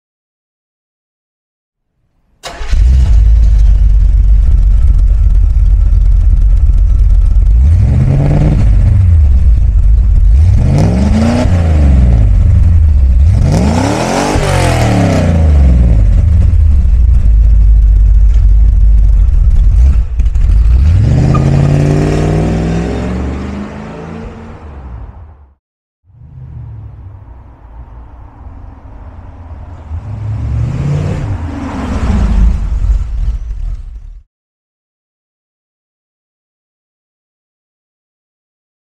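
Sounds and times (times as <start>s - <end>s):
car engine idling and revving: 2.5s - 34.3s
car accelerating away: 19.5s - 24.8s.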